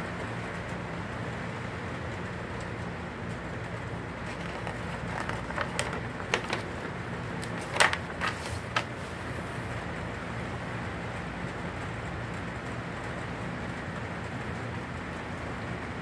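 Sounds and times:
magazine pages rustling: 4.2 - 9.8.

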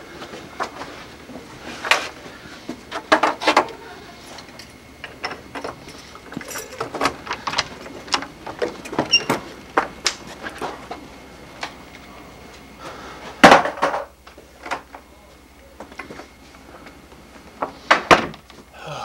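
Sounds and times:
door unlocking with keys: 4.3 - 9.4.

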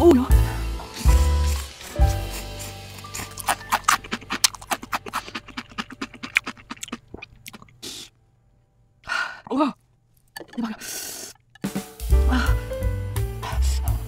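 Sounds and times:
potato chip crunching: 0.9 - 8.0
person gasping in pain: 12.3 - 12.7.

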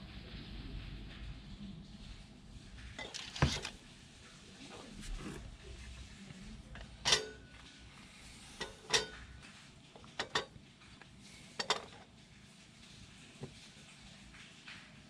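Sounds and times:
metallic clinks of wire rack: 7.0 - 7.6, 8.6 - 9.3.

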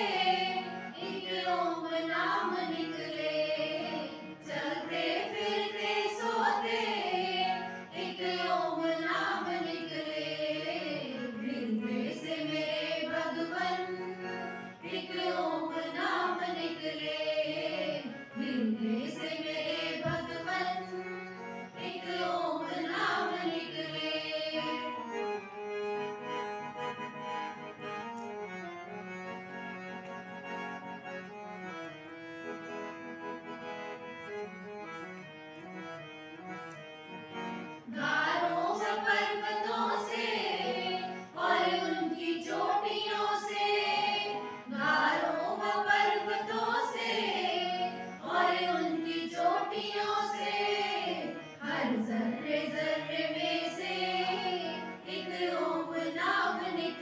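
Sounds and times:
women singing in unison: 0.0 - 14.0, 14.8 - 21.0, 21.8 - 24.9, 37.9 - 57.0
harmonium: 0.0 - 57.0.

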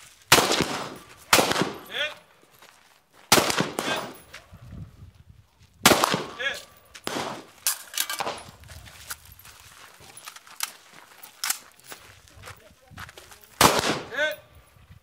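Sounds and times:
rifle shots: 0.3 - 2.0, 3.3 - 4.2, 5.8 - 8.6, 13.6 - 14.4.

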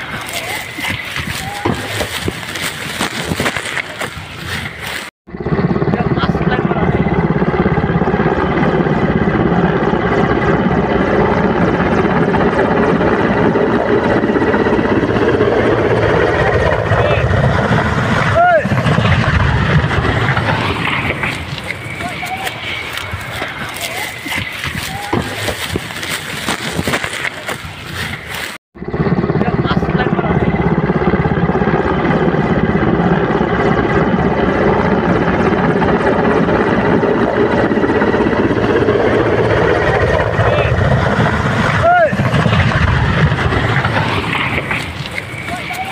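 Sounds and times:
helicopter rotor beat: 0.0 - 45.9
turbine engine whine: 0.0 - 45.9.

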